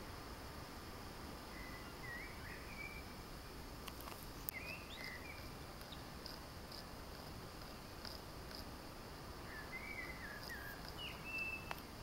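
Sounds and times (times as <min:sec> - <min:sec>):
steady hiss: 0:00.0 - 0:12.0
faint whistled bird chirps: 0:01.5 - 0:03.2, 0:04.5 - 0:06.0, 0:09.4 - 0:11.8.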